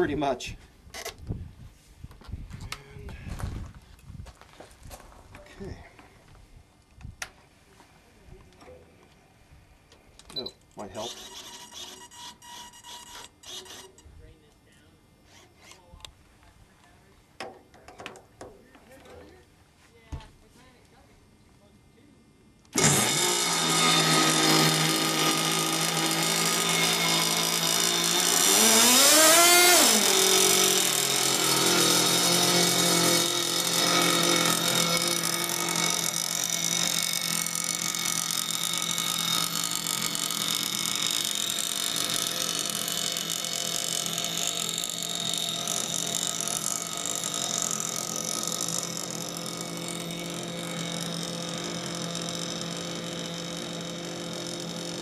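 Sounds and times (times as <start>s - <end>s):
electric starter spinning: 10.8s - 14.1s, 22.7s - 55.0s
model engine revving and idling: 22.8s - 55.0s.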